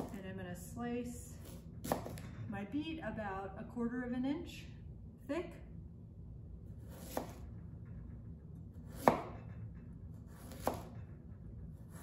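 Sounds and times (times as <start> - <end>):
knife slicing onto cutting board: 1.4 - 2.2, 6.8 - 7.4, 10.3 - 10.9.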